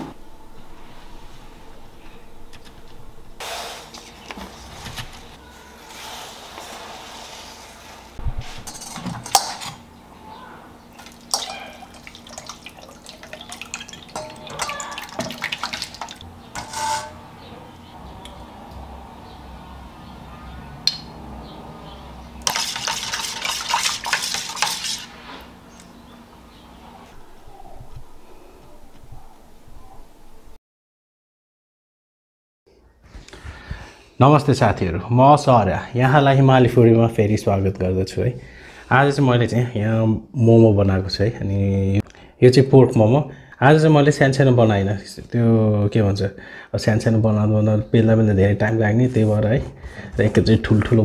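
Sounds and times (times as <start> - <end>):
spoon stirring in metal bowl: 11.0 - 17.2, 22.4 - 25.2.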